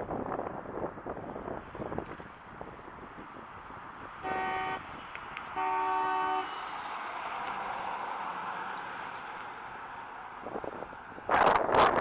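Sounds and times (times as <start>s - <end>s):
car horn honking: 4.2s - 4.9s, 5.5s - 6.7s
car driving past: 4.2s - 11.4s.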